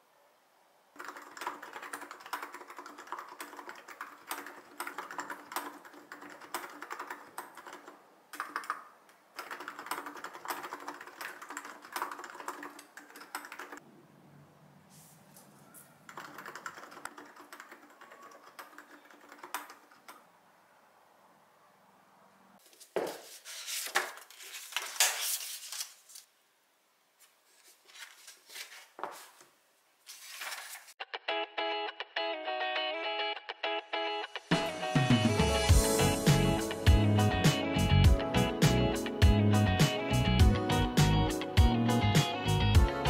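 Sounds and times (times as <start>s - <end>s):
typing on mechanical keyboard: 1.0s - 13.8s, 16.0s - 20.2s.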